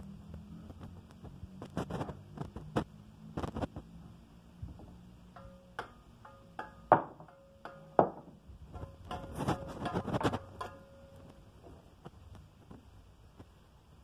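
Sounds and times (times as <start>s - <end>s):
trowel tapping and scraping: 5.3s - 11.4s
trowel striking brick: 5.4s - 11.3s.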